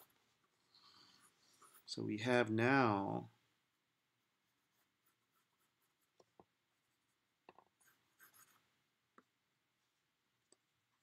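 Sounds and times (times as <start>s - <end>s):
pencil scratching on paper: 0.8s - 1.9s, 4.5s - 7.2s, 7.8s - 8.6s.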